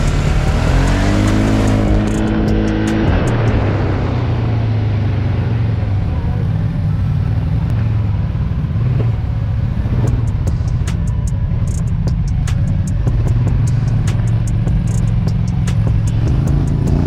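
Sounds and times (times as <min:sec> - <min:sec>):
atv engine running: 0:00.0 - 0:17.0
sharp ticks: 0:00.2 - 0:03.5, 0:10.1 - 0:17.0.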